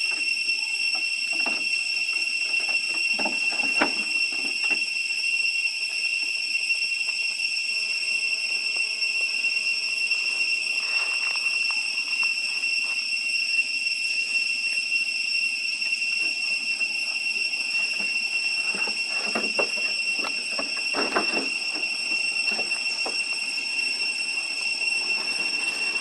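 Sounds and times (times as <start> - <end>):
cicadas droning: 0.0 - 26.0
faint scuffs and rustles: 10.3 - 13.0.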